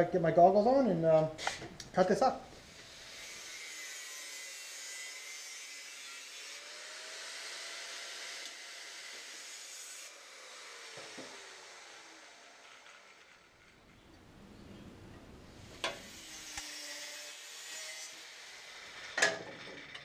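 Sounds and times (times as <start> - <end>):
power tool cutting metal: 2.6 - 13.8, 15.8 - 20.0.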